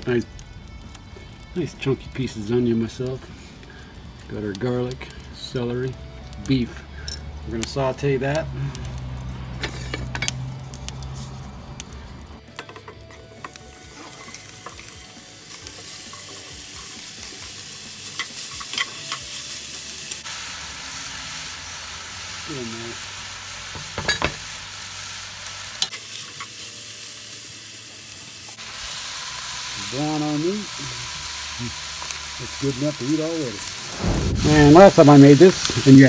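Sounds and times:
food sizzling in hot oil: 0.0s - 36.0s.

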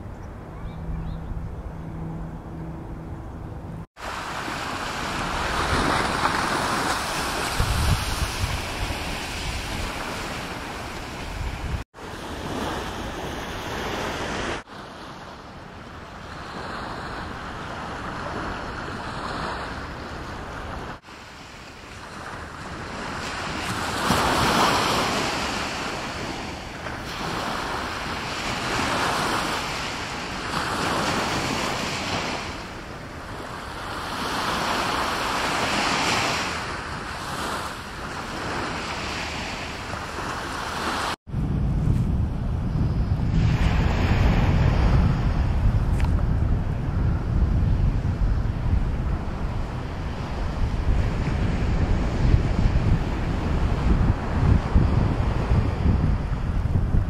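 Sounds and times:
wind buffeting the microphone: 0.0s - 57.0s
sea surf breaking: 4.0s - 15.3s, 16.3s - 41.2s.

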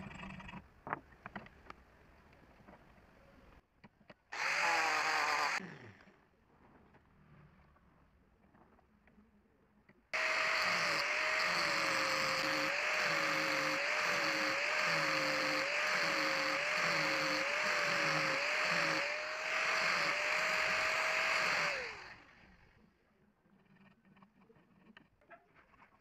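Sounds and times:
power tool motor whine: 4.4s - 5.6s, 10.2s - 22.5s
sanding drum grinding metal: 10.2s - 22.0s.

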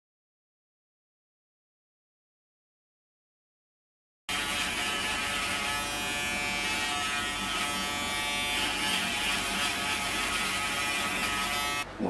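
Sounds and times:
electric shaver buzzing: 4.3s - 11.9s.

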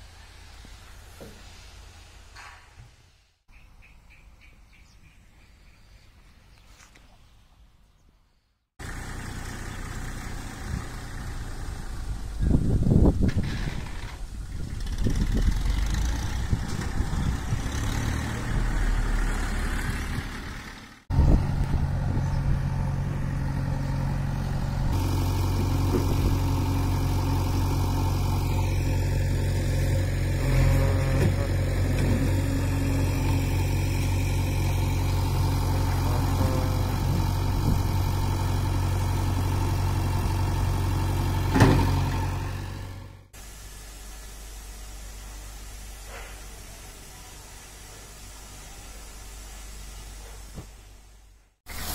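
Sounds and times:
tractor working: 8.8s - 43.4s, 51.7s - 51.9s
diesel engine humming: 8.8s - 43.6s.

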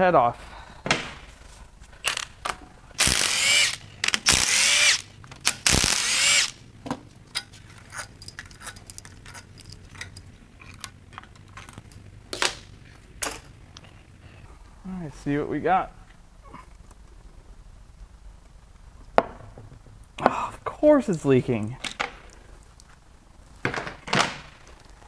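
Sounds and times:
power wrench whirring: 3.0s - 6.6s
metal bolts clinking: 7.3s - 12.1s, 13.2s - 13.5s.

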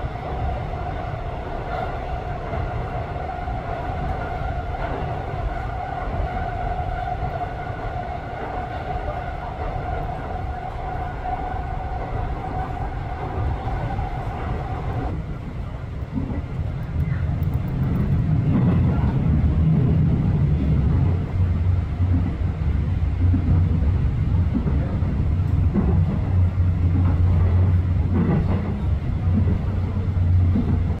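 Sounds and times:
subway train wheels rumbling: 0.0s - 31.0s.

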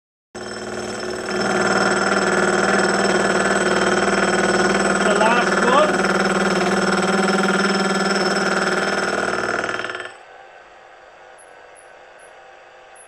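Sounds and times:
quiet steady machine hum: 9.2s - 13.0s.

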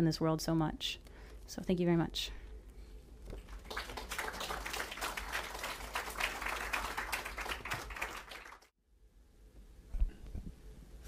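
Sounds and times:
audience applauding: 3.4s - 8.7s.

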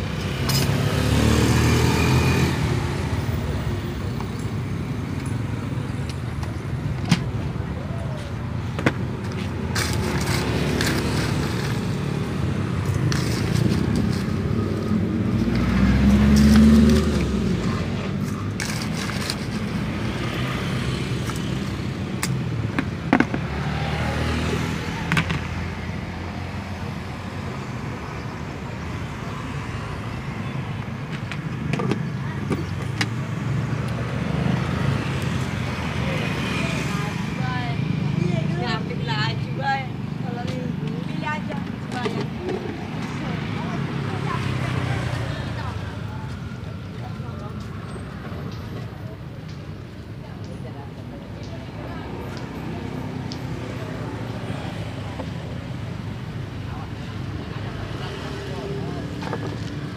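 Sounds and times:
roadside traffic noise: 0.0s - 59.9s
vehicle passing close by: 0.6s - 2.9s, 14.8s - 18.2s.

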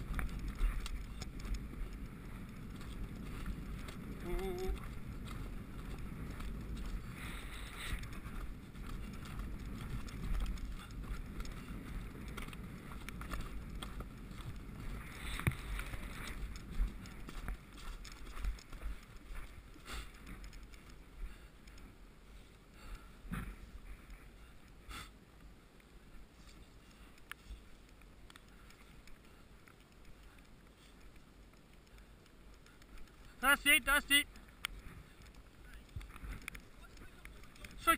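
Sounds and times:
muffled hoofbeats on turf: 0.0s - 22.0s
wind buffeting microphone: 0.0s - 22.3s.

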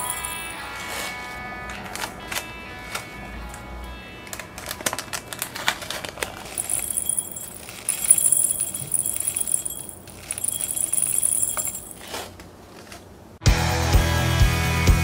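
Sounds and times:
tiny beads pouring into glass jar: 0.0s - 0.6s, 6.6s - 12.0s.

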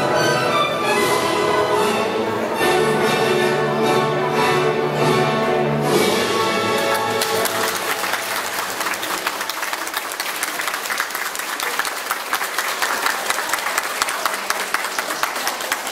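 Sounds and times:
orchestral chord: 0.0s - 8.6s
audience applauding: 6.8s - 15.9s.

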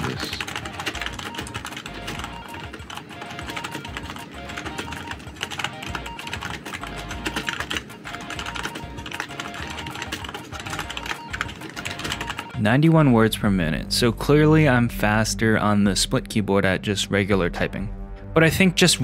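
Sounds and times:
typing on computer keyboard: 0.0s - 12.6s
quiet background music: 0.0s - 19.0s.

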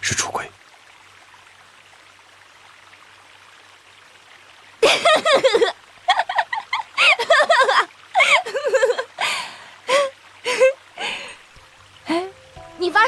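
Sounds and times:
faint steady background hiss: 0.0s - 13.0s
person speaking: 12.1s - 13.0s.

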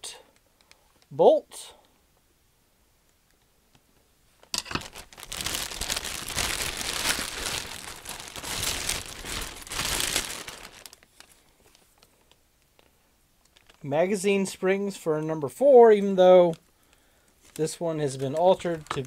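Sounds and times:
plastic bag crinkling: 4.4s - 13.9s, 16.4s - 19.0s.

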